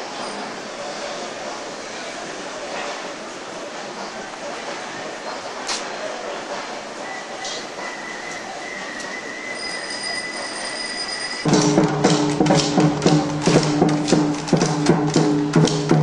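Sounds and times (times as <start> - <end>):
music with fast percussive beat: 11.5 - 16.0.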